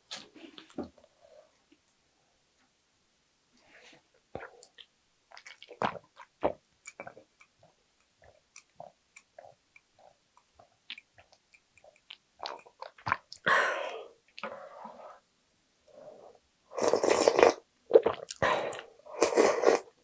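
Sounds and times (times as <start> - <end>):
person gulping: 4.4 - 14.6, 16.8 - 20.0.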